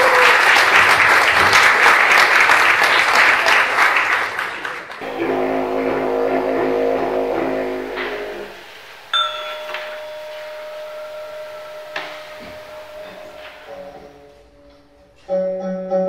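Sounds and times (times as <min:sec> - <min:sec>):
audience applauding: 0:00.0 - 0:14.2
didgeridoo drone: 0:05.0 - 0:15.2.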